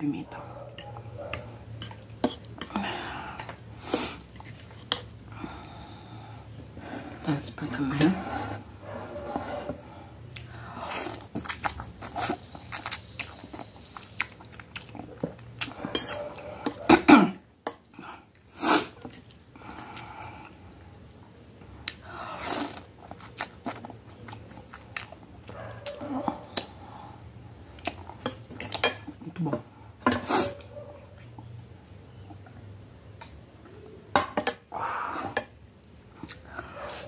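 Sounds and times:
chewing noodles: 0:09.0 - 0:16.9, 0:21.8 - 0:27.1.

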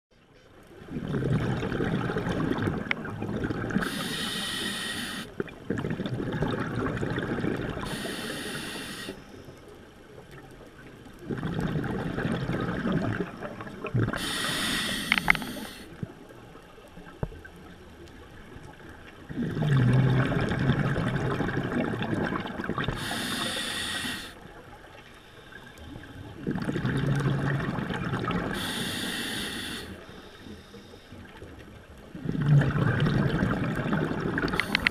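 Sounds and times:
exhaled bubbles rushing: 0:00.8 - 0:04.6, 0:05.4 - 0:08.1, 0:11.2 - 0:16.2, 0:19.2 - 0:23.3, 0:25.9 - 0:28.7, 0:32.1 - 0:34.9
regulator hiss: 0:03.8 - 0:05.3, 0:07.9 - 0:09.3, 0:14.2 - 0:15.9, 0:23.0 - 0:24.4, 0:28.6 - 0:30.6.

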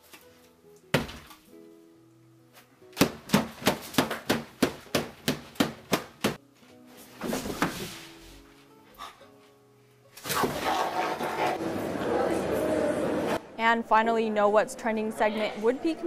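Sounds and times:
light background music: 0:00.0 - 0:10.7.

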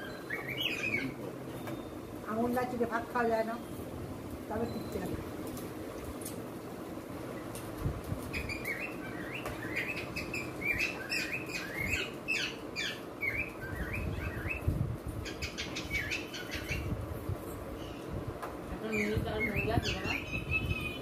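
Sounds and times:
small bird chirping rapidly: 0:08.2 - 0:17.0.

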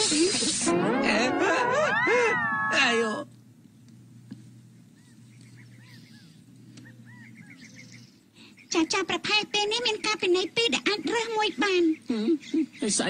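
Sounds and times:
faint low hum: 0:00.0 - 0:13.0
cartoon wolf wailing cry: 0:00.7 - 0:03.2.

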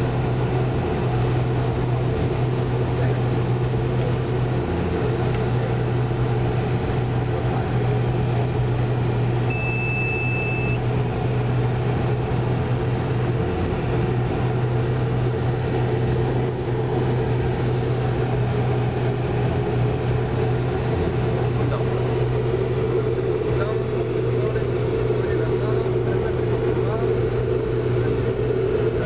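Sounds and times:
constant low hum: 0:00.0 - 0:29.0
jet engines droning: 0:00.0 - 0:29.0
high cockpit beep: 0:09.5 - 0:10.8.

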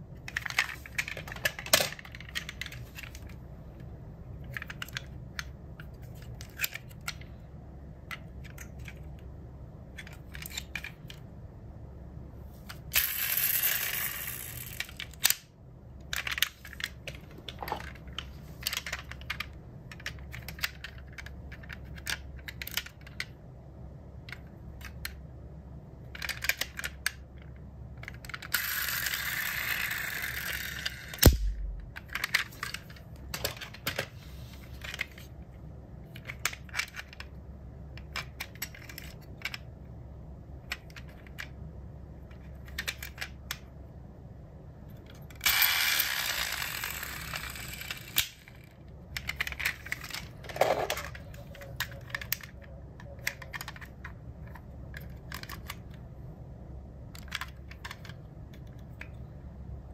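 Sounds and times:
metal model cars clicking and tapping: 0:26.1 - 0:31.4, 0:42.3 - 0:43.7, 0:45.0 - 0:56.0, 0:57.2 - 0:59.2.

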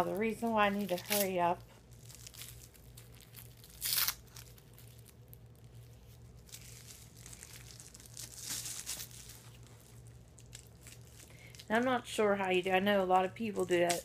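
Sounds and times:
wrapping crinkling: 0:00.0 - 0:14.0.

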